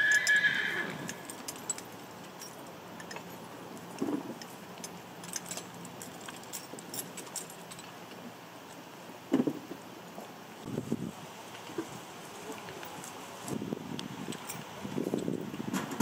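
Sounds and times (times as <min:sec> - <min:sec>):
metallic clinks and jingles: 0:00.1 - 0:08.0.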